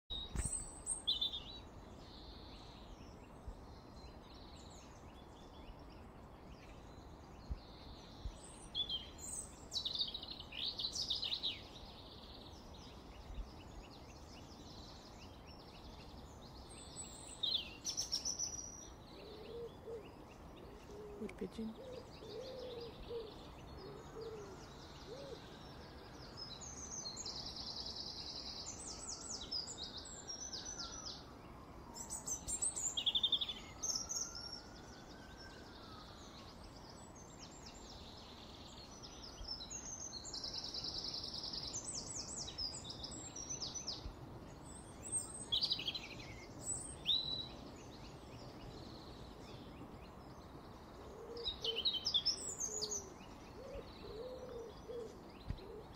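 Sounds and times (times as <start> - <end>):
songbirds twittering: 0.1 - 55.9
pigeon cooing: 20.9 - 23.3, 53.6 - 55.9.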